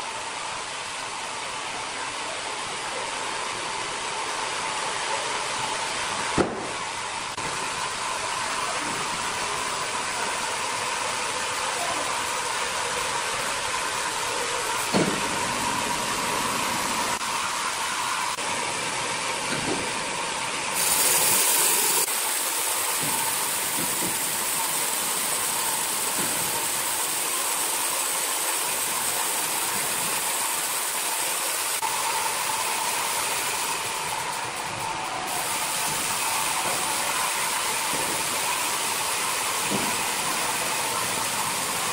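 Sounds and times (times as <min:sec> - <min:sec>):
sawmill hum: 0:00.0 - 0:41.9
band saw cutting log hiss: 0:20.7 - 0:34.7.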